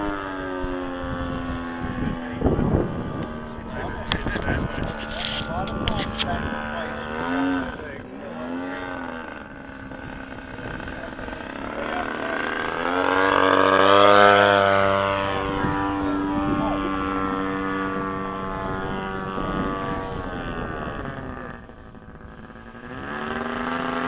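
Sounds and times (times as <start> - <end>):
model airplane engine and propeller: 0.0 - 24.0.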